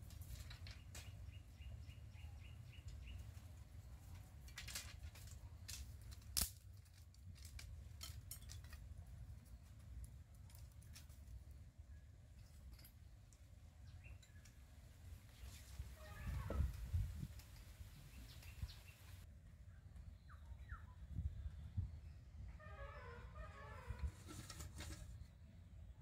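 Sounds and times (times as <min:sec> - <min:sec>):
firewood sticks clicking and cracking: 0:00.0 - 0:01.4, 0:02.8 - 0:11.7
stick snapping: 0:04.5 - 0:08.5.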